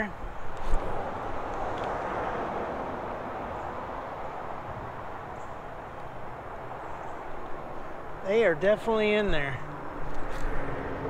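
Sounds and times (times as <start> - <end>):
outdoor rushing noise: 0.4 - 11.0.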